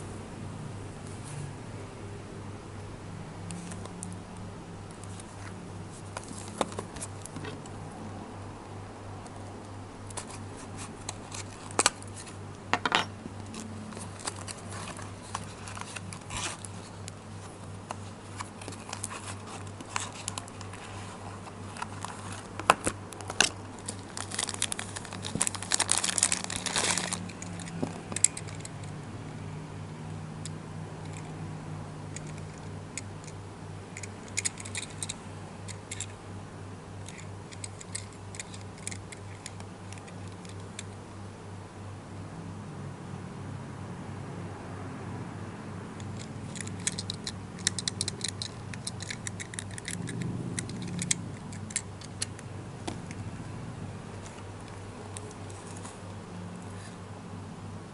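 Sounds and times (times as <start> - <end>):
steady low hum: 0.0 - 57.9
plastic bag crinkling: 23.8 - 28.6.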